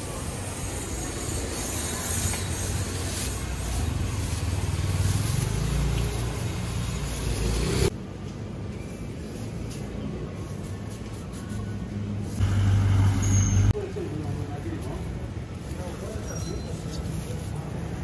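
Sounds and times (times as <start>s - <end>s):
vehicle engine rumbling: 11.6s - 14.6s.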